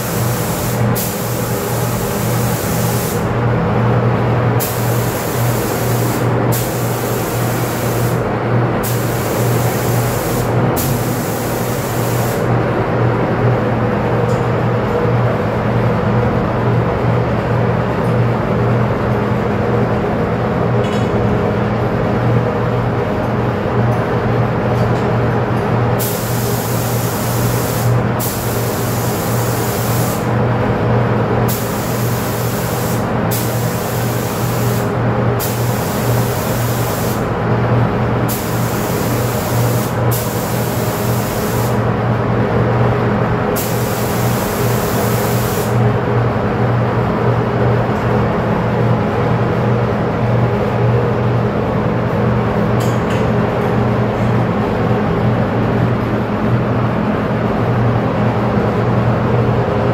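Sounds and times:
spray gun hissing: 0.0 - 3.3, 4.6 - 8.2, 8.8 - 12.5, 26.0 - 30.3, 31.5 - 37.2, 38.3 - 41.8, 43.6 - 45.8
exhaust fan humming: 0.0 - 59.9.

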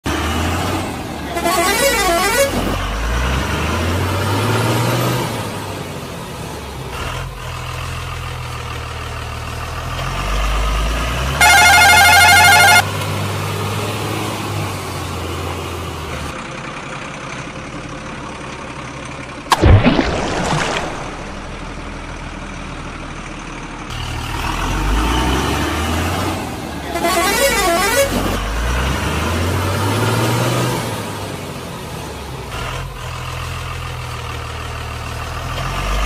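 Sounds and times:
truck engine drone: 0.0 - 36.0
warbling horn blasts: 1.3 - 2.8, 11.4 - 12.9, 26.9 - 28.4.

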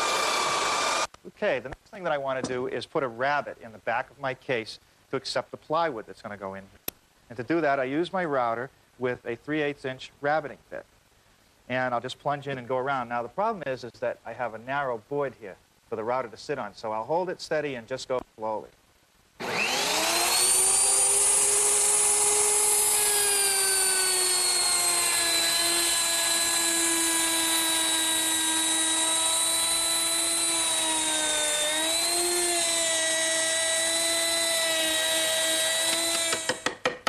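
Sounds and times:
electric router whining: 0.0 - 1.1, 19.4 - 36.6.

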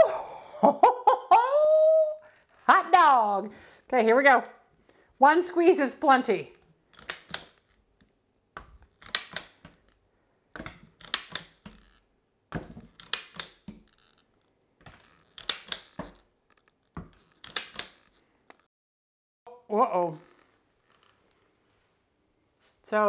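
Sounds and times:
plastic cookie press clicking: 6.9 - 7.6, 8.5 - 9.9, 10.6 - 13.9, 14.8 - 16.2, 17.1 - 18.2.

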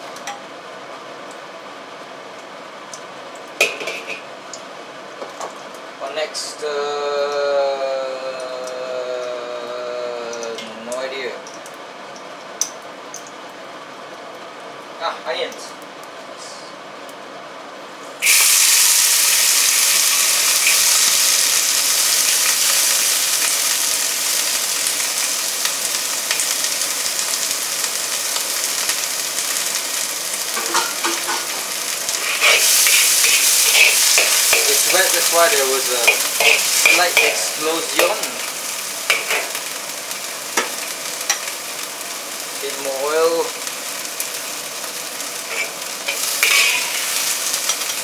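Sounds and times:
food sizzling in a pan: 3.5 - 4.3, 6.6 - 11.6, 18.2 - 48.0
spatula scraping and tapping a pan: 30.6 - 31.6.

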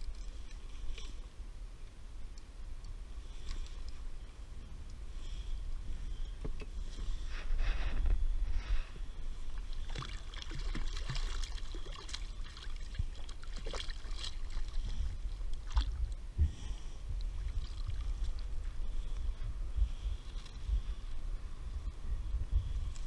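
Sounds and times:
steady low rumble: 0.0 - 23.0
water splashing against kayak: 9.6 - 16.2.

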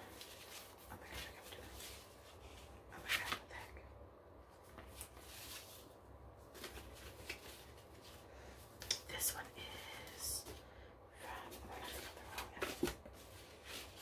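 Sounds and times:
scratchy handling noises: 4.6 - 9.0.

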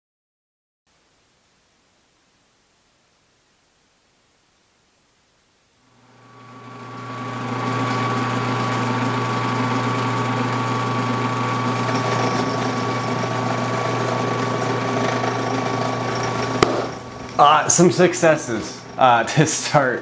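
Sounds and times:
drill press drilling metal: 6.2 - 17.5.

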